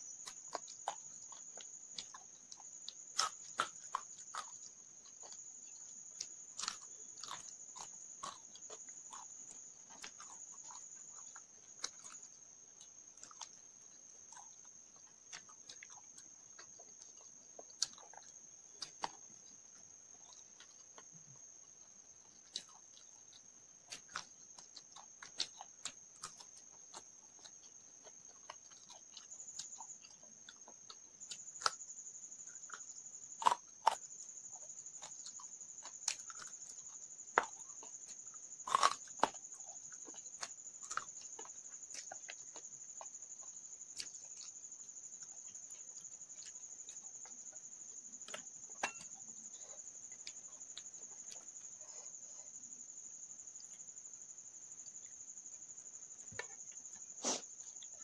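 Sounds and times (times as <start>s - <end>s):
crickets chirring: 0.0s - 58.0s
chewing and mouth smacks: 0.2s - 31.8s.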